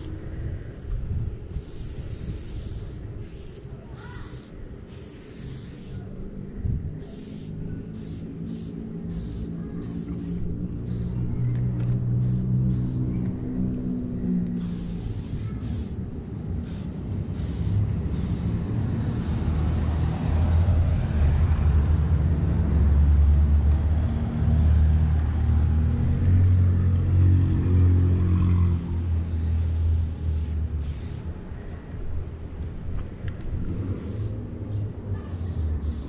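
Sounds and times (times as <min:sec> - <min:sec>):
aerosol spray can hissing: 0:01.6 - 0:06.1, 0:07.0 - 0:11.2, 0:12.2 - 0:13.0, 0:14.5 - 0:16.0, 0:16.6 - 0:18.6, 0:19.2 - 0:20.9, 0:21.8 - 0:22.6, 0:23.2 - 0:25.8, 0:28.6 - 0:31.3, 0:34.0 - 0:34.4, 0:35.1 - 0:36.0.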